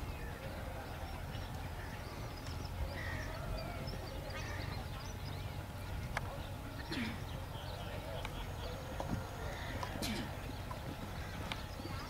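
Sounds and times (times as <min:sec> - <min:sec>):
low outdoor rumble: 0:00.0 - 0:12.0
crows cawing: 0:03.0 - 0:03.4, 0:09.4 - 0:09.9.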